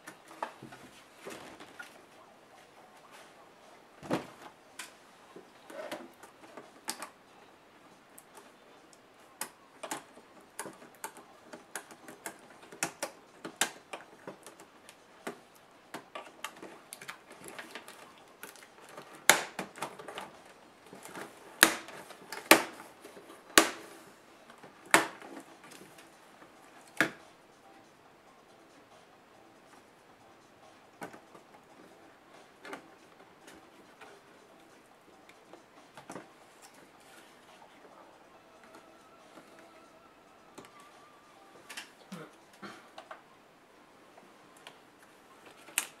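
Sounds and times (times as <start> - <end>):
plastic clips snapping: 9.4 - 20.3, 21.0 - 22.8, 23.5 - 23.9, 24.5 - 25.4, 45.5 - 46.0.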